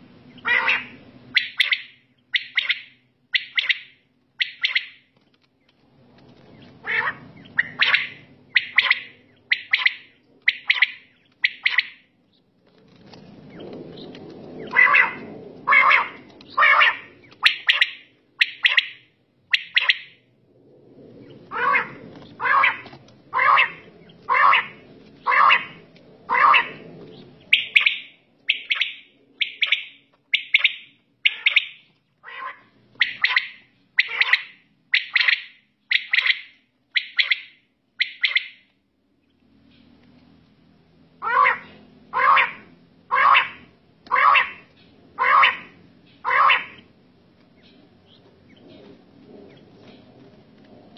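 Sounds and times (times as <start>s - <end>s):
quails calling: 0.3s - 5.1s, 6.4s - 12.4s, 13.5s - 20.3s, 21.2s - 39.9s, 41.2s - 47.0s.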